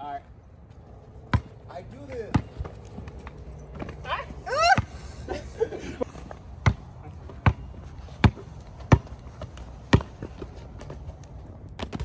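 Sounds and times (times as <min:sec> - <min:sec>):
basketball bouncing on asphalt: 0:01.1 - 0:04.0, 0:06.5 - 0:12.0.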